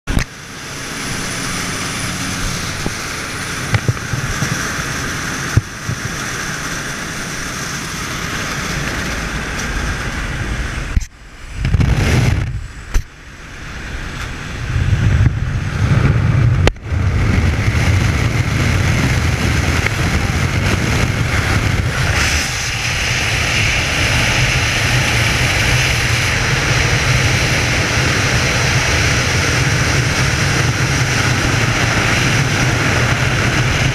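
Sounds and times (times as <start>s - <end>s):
freefall wind roar: 0.1s - 33.9s
plane engine drone: 0.1s - 33.9s
rushing air at open door: 0.3s - 33.9s.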